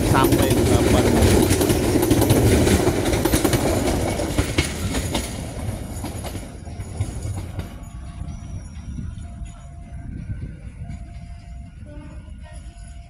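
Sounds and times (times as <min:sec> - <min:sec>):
train wheels clacking over rail joints: 0:00.0 - 0:09.9.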